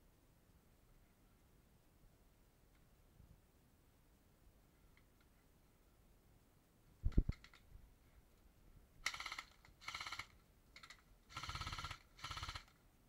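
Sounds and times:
airsoft gun full-auto bursts: 9.0s - 12.8s.

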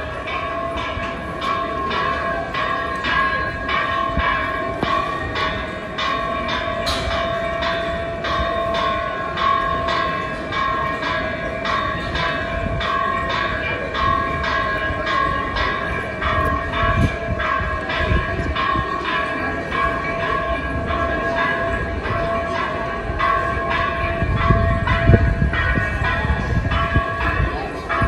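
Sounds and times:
temple bell clanging: 0.0s - 28.0s.

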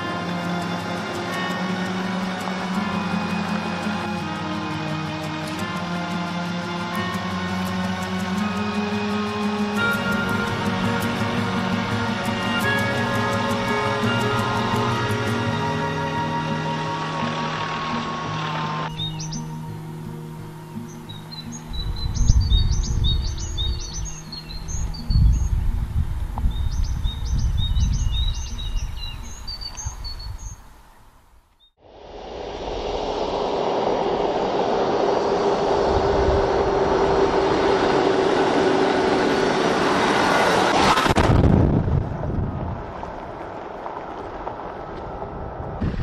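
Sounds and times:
vehicle driving on gravel: 7.0s - 19.5s, 32.4s - 46.0s
small birds chirping: 18.4s - 19.7s, 20.7s - 25.8s, 26.4s - 31.8s
low gusty rumble: 21.5s - 46.0s.

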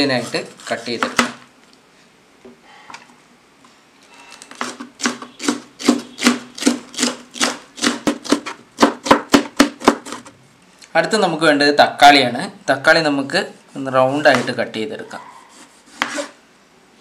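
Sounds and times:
knife slicing on cutting board: 15.5s - 16.4s.

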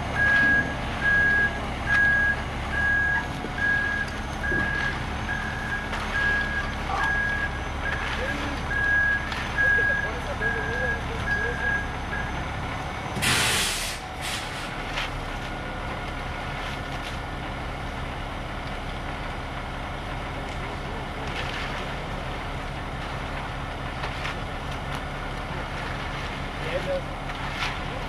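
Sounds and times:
truck engine running: 0.0s - 28.0s
rakes scraping wet concrete: 3.3s - 11.5s, 21.2s - 22.4s, 23.0s - 28.0s
air brakes hissing: 13.2s - 14.7s.

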